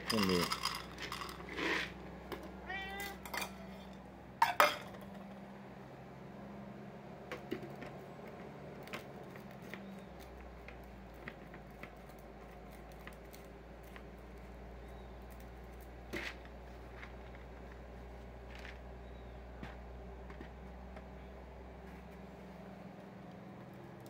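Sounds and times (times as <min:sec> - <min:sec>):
cat crunching dry food: 0:00.0 - 0:03.7, 0:08.8 - 0:14.6.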